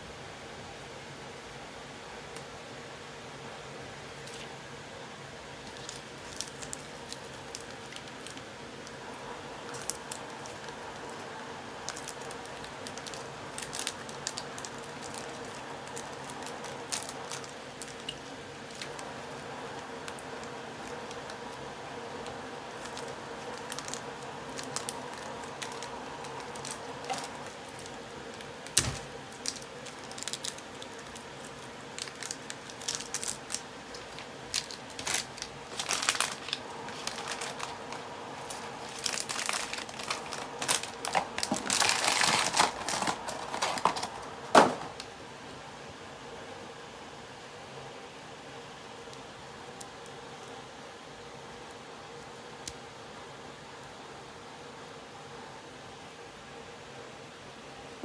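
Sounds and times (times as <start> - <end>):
faint steady hum: 0.0 - 58.0
plastic bag crinkling: 5.6 - 45.1.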